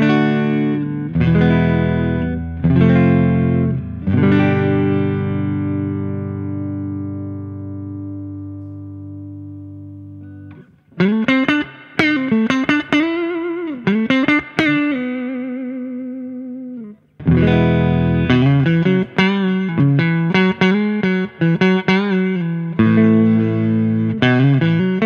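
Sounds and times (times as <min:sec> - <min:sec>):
electric guitar through an amp: 0:00.0 - 0:25.0.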